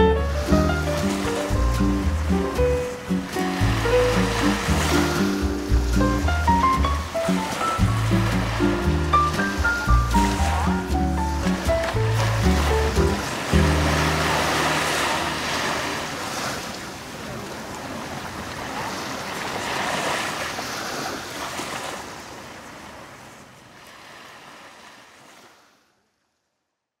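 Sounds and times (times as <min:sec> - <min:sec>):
small waves washing onto beach: 0:00.0 - 0:25.9.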